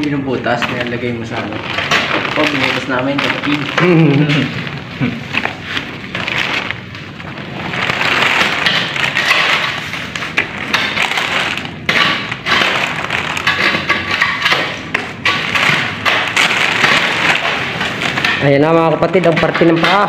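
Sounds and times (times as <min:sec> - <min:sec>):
cloth and plastic crackling: 0:00.0 - 0:20.0
sharp knocks among debris: 0:01.6 - 0:04.5, 0:07.8 - 0:20.0.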